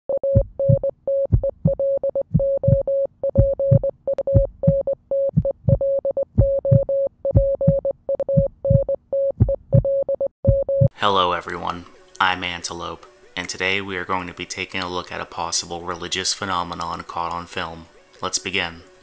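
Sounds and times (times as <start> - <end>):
low thumping beat: 0.2 - 11.0.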